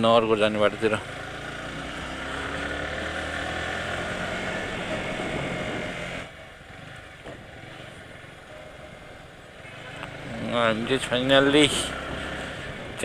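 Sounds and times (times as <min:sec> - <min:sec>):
road and wind noise: 0:00.0 - 0:13.0
motorcycle engine running: 0:00.1 - 0:13.0.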